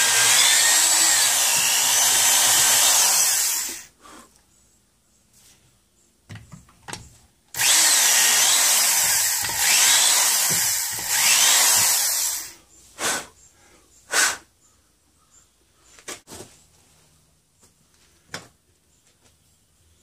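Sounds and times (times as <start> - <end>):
electric drill boring into wood: 0.0 - 3.9, 7.6 - 12.6.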